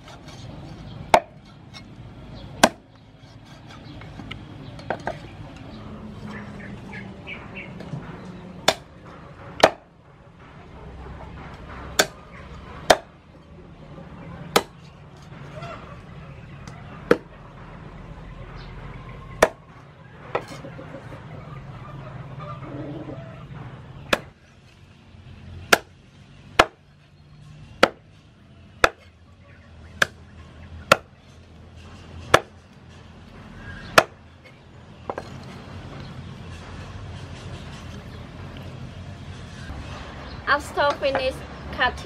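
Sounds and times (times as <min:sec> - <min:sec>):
cleaver chopping on wooden board: 0:02.6 - 0:02.8, 0:09.6 - 0:09.9, 0:11.9 - 0:12.2, 0:12.8 - 0:13.1, 0:14.5 - 0:14.8, 0:17.1 - 0:17.3, 0:24.1 - 0:24.4, 0:25.7 - 0:25.9, 0:26.6 - 0:26.8, 0:27.8 - 0:28.0, 0:28.8 - 0:29.1, 0:30.9 - 0:31.1, 0:32.3 - 0:32.6, 0:33.9 - 0:34.2.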